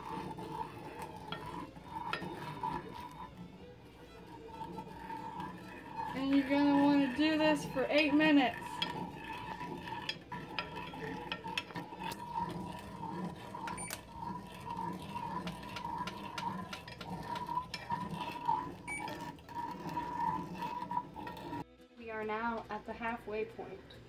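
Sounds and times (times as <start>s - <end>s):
spatula scraping a saucepan: 0.0s - 21.7s
utensil clicking against pan: 6.1s - 12.5s, 13.6s - 19.0s.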